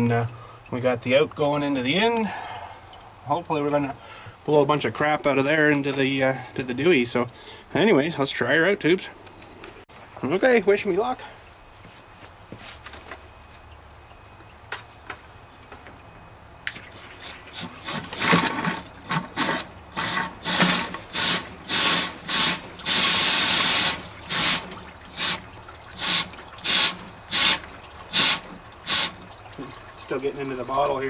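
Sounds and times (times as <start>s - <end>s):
compressed air blow gun hissing: 20.0s - 24.6s.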